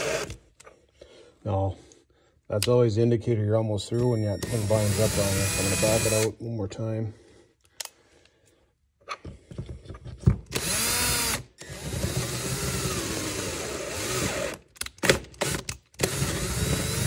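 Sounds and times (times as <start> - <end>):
cordless drill boring metal: 0.0 - 0.4, 4.0 - 6.3, 10.5 - 14.6, 15.4 - 17.0.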